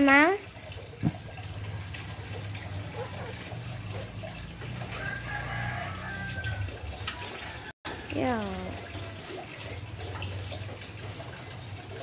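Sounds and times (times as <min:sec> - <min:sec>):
rooster crowing: 0:04.9 - 0:08.0.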